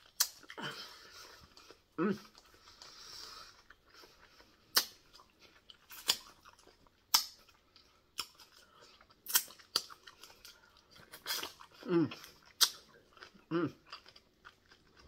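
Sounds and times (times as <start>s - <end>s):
person chewing: 0.0s - 15.0s
wet mouth clicks: 0.1s - 0.4s, 4.7s - 5.0s, 12.5s - 12.8s.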